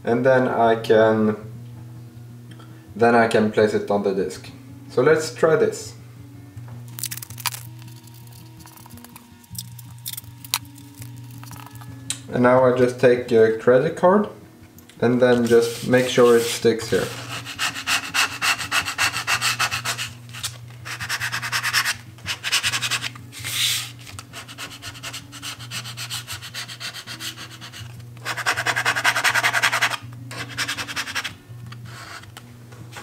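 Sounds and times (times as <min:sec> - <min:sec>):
plastic card scraping over tape: 0:06.9 - 0:11.8, 0:15.4 - 0:32.4.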